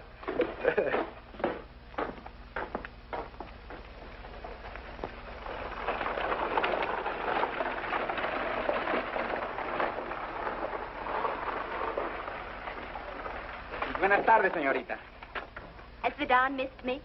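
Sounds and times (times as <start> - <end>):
hooves and wheels on dirt road: 0.2 - 15.7.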